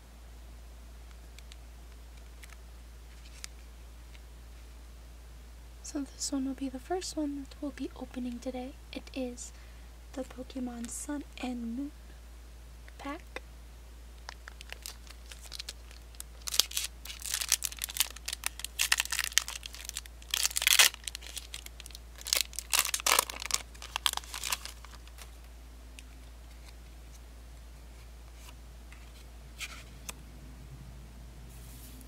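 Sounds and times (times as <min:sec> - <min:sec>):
faint handling sounds: 0:01.1 - 0:04.7, 0:14.2 - 0:30.2, 0:31.5 - 0:32.0
foil wrapper crinkling: 0:14.2 - 0:25.4.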